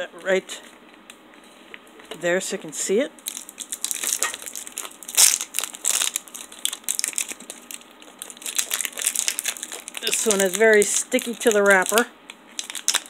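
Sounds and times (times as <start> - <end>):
plastic wrapper crinkling: 3.2 - 13.0.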